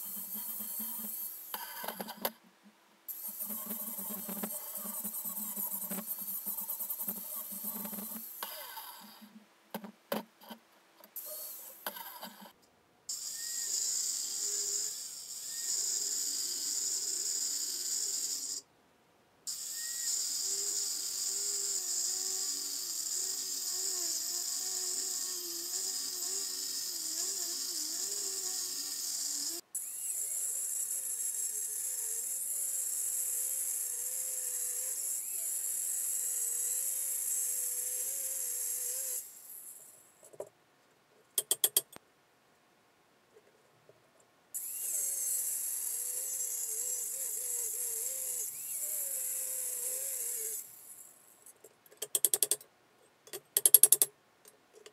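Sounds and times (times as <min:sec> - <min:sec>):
angle grinder grinding steel: 0:00.0 - 0:02.2, 0:03.1 - 0:09.2, 0:19.5 - 0:39.4, 0:44.6 - 0:50.7.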